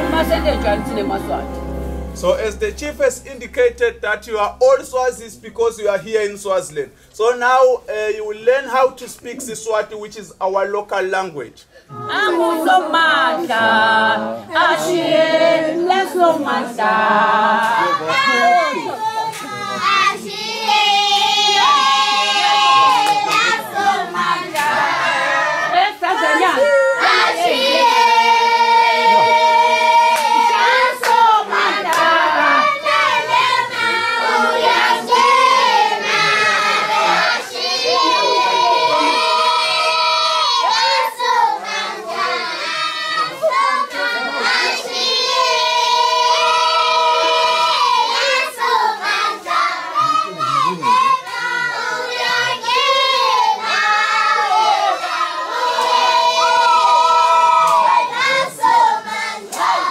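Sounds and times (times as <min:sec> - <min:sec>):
group singing unaccompanied: 0:00.0 - 0:03.5, 0:11.9 - 0:59.9
handclaps: 0:19.3 - 0:19.6, 0:22.9 - 0:23.5, 0:30.1 - 0:30.4, 0:31.0 - 0:31.2, 0:31.9 - 0:32.1.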